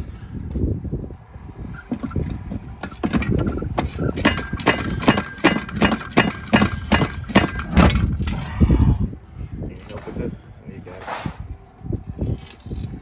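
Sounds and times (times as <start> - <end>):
sharp metallic knocks: 1.8 - 8.4.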